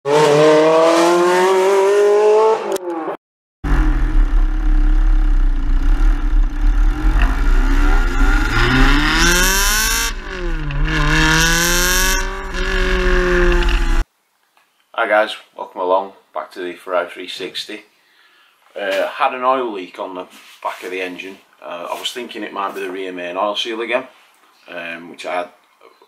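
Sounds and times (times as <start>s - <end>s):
sports car engine accelerating: 0.1s - 14.0s.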